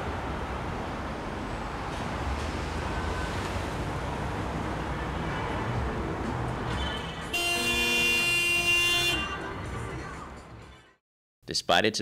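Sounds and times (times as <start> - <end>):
street traffic rumbling: 0.0 - 11.0
vehicle horn honking: 7.2 - 9.7.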